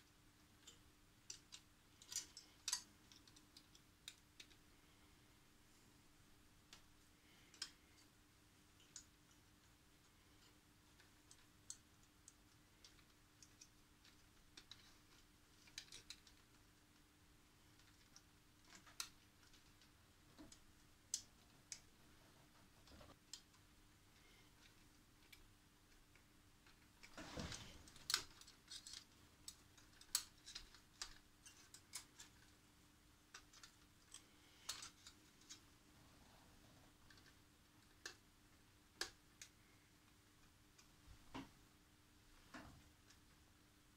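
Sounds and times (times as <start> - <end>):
fingers handling wires and metal parts: 0.4 - 4.7, 8.8 - 17.1, 24.5 - 35.8, 36.9 - 38.3
plastic connectors clicking: 24.6 - 32.5.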